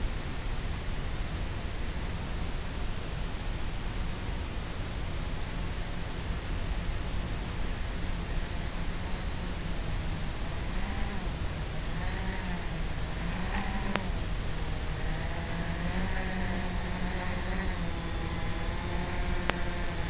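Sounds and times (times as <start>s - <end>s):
steady hiss: 0.0s - 20.0s
drone propellers buzzing: 4.2s - 20.0s
sharp tick: 13.8s - 14.1s, 19.4s - 19.7s.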